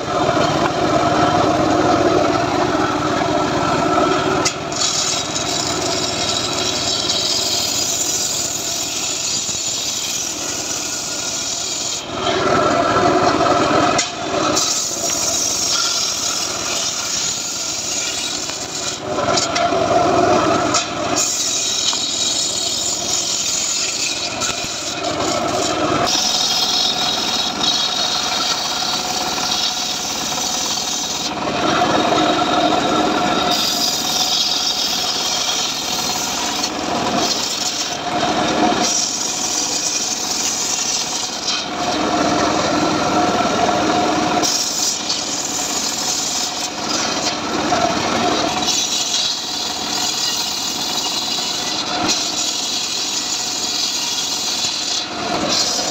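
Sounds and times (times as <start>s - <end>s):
circular saw cutting wood: 0.0s - 55.9s.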